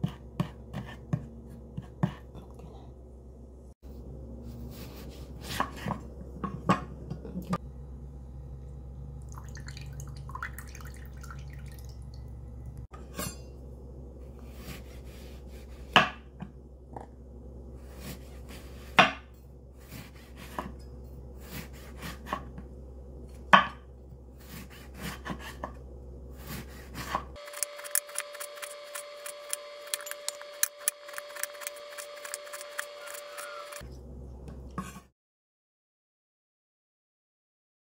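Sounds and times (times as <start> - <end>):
low hum: 0.6 - 34.8
knife slicing lemon: 26.5 - 33.8.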